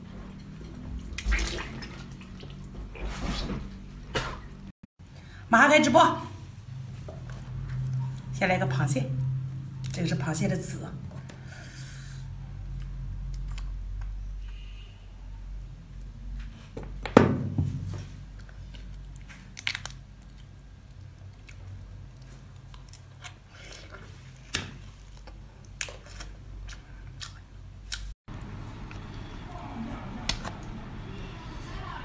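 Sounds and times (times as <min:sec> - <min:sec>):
chewing: 0:18.4 - 0:28.1
crab shell crunching: 0:18.8 - 0:28.1.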